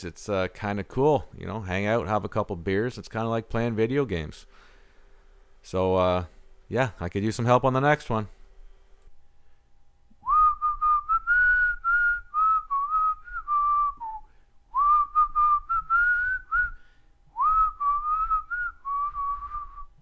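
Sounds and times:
person whistling a tune: 0:10.2 - 0:20.0.

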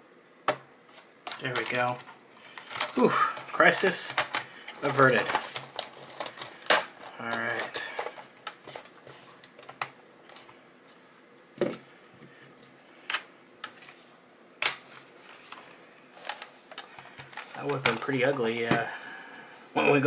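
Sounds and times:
laptop being handled: 0:00.5 - 0:10.6, 0:13.1 - 0:18.9.

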